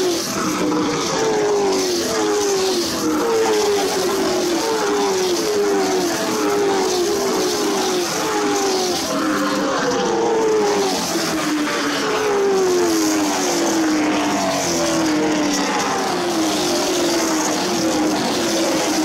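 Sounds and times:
race car engines passing: 0:00.0 - 0:19.0.

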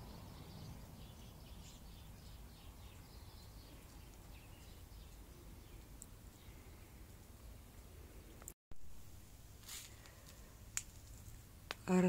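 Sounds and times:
faint birds chirping: 0:00.0 - 0:08.6.

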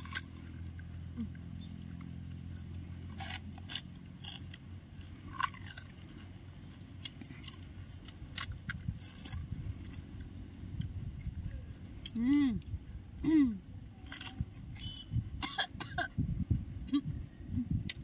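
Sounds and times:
crunchy shells being bitten and chewed: 0:00.0 - 0:12.8, 0:13.8 - 0:15.3
low hum: 0:00.0 - 0:18.0.

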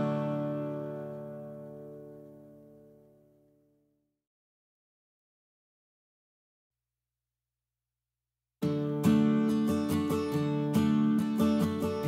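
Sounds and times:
acoustic guitar music: 0:00.0 - 0:03.6, 0:08.6 - 0:12.0.

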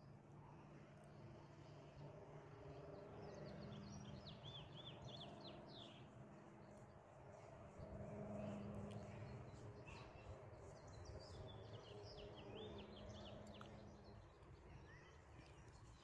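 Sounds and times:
small birds chirping: 0:08.4 - 0:16.0.

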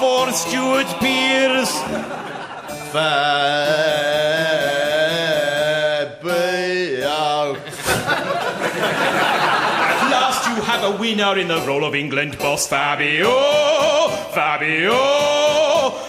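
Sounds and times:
men singing a cappella: 0:00.0 - 0:08.1, 0:12.7 - 0:16.0.

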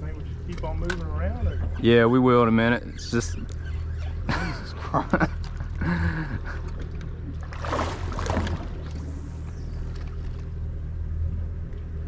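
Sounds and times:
voices: 0:00.0 - 0:06.6
outboard motor idling: 0:00.0 - 0:12.0.

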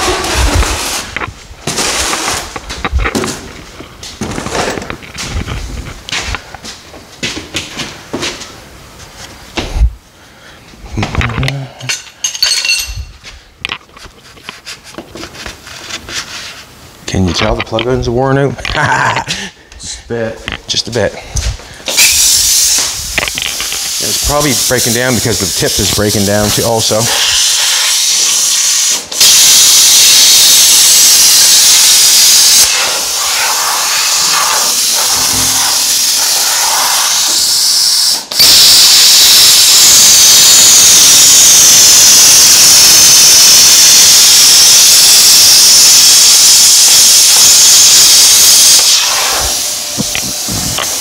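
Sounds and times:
plasma cutter hissing: 0:21.9 - 0:51.0.

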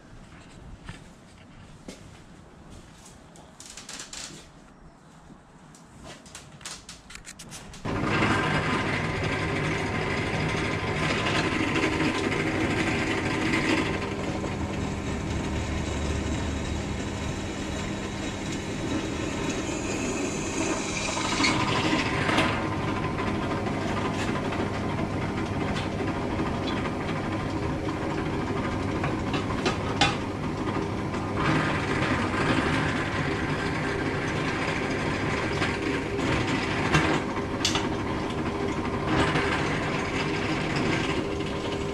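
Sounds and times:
drill bit cutting sheet metal: 0:07.9 - 0:22.6
drill press motor humming: 0:07.9 - 0:41.9.

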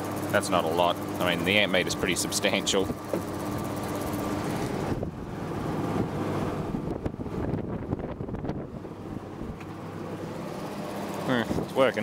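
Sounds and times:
fan motor running: 0:00.0 - 0:12.0
air buffeting microphone: 0:01.4 - 0:09.7, 0:11.2 - 0:12.0.

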